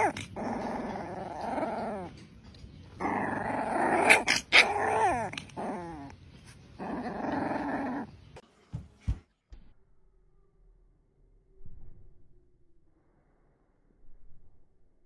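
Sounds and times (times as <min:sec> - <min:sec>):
puppy growling and yelping: 0:00.0 - 0:08.3.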